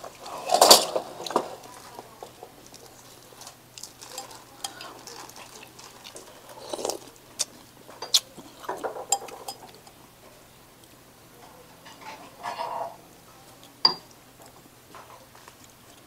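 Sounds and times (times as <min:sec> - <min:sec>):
chewing and mouth sounds: 0:02.6 - 0:10.0
utensils clicking on ceramic bowl: 0:08.0 - 0:10.0.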